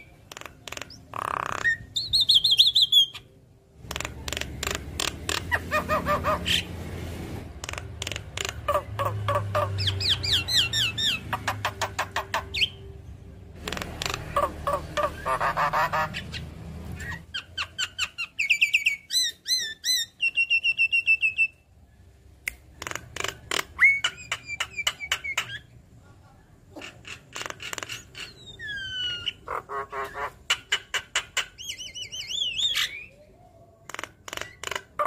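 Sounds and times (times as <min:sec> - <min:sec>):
bird song with clicks and whistles: 0:00.0 - 0:05.5, 0:09.8 - 0:12.9, 0:17.0 - 0:21.6, 0:22.5 - 0:25.7
harsh bird chatter: 0:00.0 - 0:06.8, 0:07.6 - 0:12.8, 0:13.6 - 0:20.2, 0:22.8 - 0:25.7, 0:26.7 - 0:33.2, 0:33.8 - 0:35.0.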